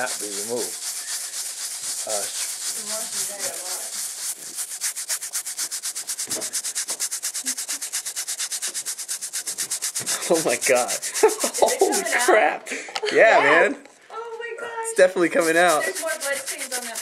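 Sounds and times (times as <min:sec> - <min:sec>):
fabric scrubbing: 0:00.0 - 0:12.6, 0:15.0 - 0:17.0.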